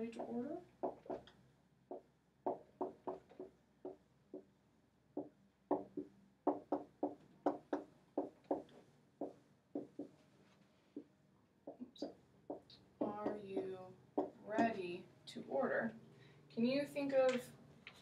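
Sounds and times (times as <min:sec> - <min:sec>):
marker writing on whiteboard: 0:00.1 - 0:01.3, 0:01.9 - 0:04.5, 0:05.2 - 0:10.3, 0:10.9 - 0:14.8.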